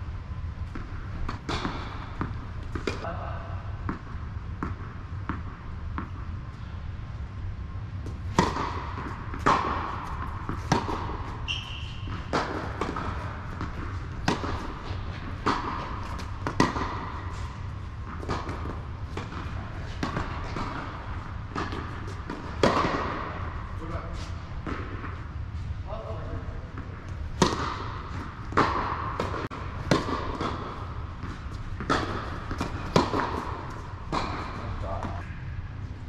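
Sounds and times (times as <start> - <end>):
tennis ball bouncing on court: 0.6 - 3.1, 3.8 - 6.3, 8.0 - 23.7, 24.6 - 25.2, 26.7 - 35.2
tennis ball struck by rackets: 0.7 - 3.1, 8.0 - 23.7, 26.8 - 35.2.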